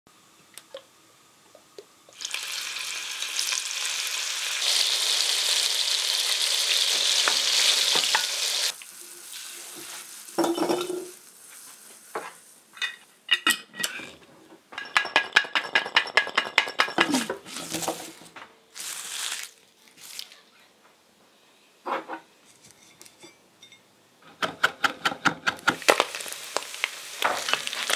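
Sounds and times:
oil sizzling in a pot: 1.1 - 13.1, 18.7 - 19.6, 25.6 - 27.9.

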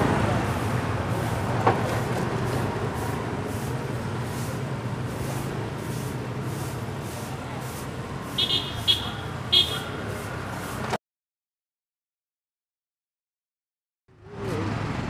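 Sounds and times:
broom sweeping concrete: 0.2 - 10.9.

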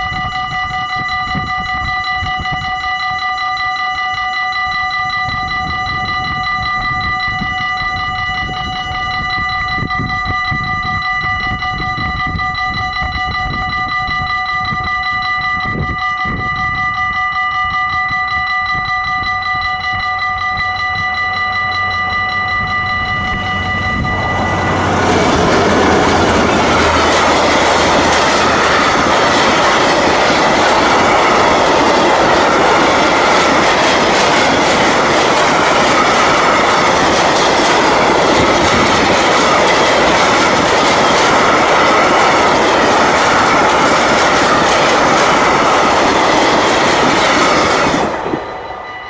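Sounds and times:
freight train wheels on rails: 0.0 - 49.0
level crossing warning bell: 0.0 - 49.0.

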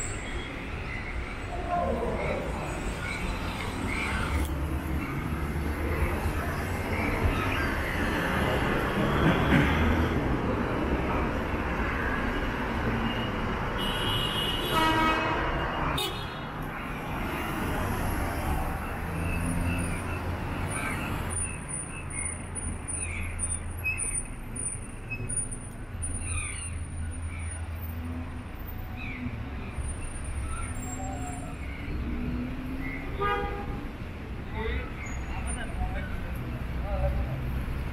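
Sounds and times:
traffic on wet road: 0.0 - 37.9
vehicle horn toot: 13.8 - 15.4.

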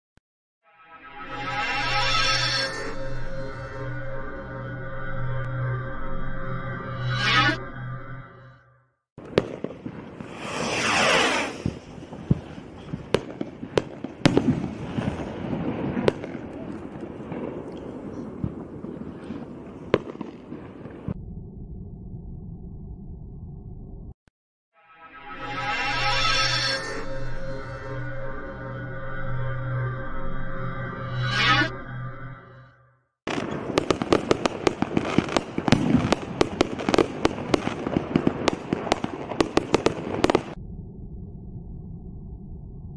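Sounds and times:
music: 0.6 - 9.0, 24.8 - 33.1
firework bangs and pops: 9.2 - 21.2, 33.3 - 40.6
firework stars hissing: 10.2 - 12.6.

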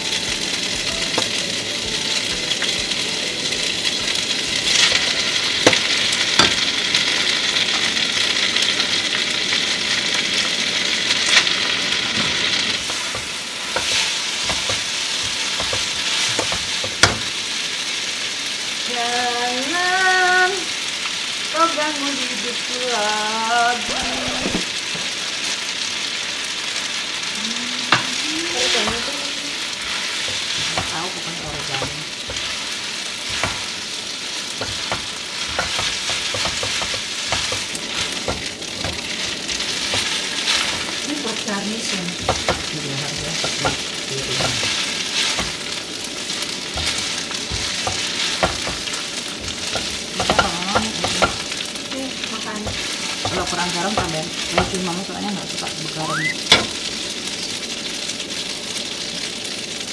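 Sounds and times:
tongs clicking and scraping a pan: 0.0 - 8.0, 11.1 - 17.4, 27.9 - 56.9
food sizzling in a frying pan: 0.0 - 59.9.

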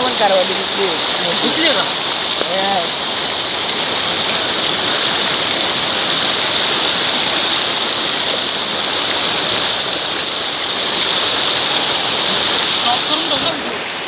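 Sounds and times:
river water rushing: 0.0 - 14.0.

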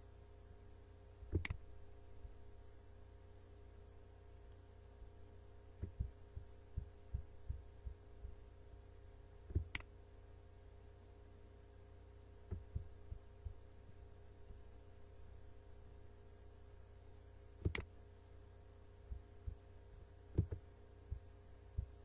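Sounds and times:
steady low hum: 0.0 - 22.0
computer mouse clicking: 1.3 - 1.6, 9.5 - 9.9, 17.6 - 17.9.

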